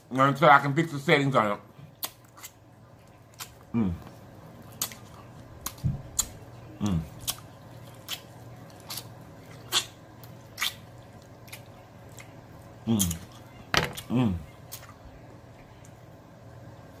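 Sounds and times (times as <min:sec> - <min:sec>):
short low voice hums: 0:14.1 - 0:14.5.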